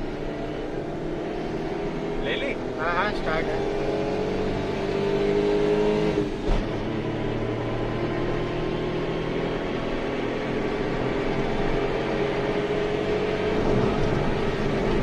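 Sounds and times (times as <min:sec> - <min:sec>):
car engine accelerating hard: 0:00.0 - 0:15.0
road noise: 0:00.0 - 0:15.0.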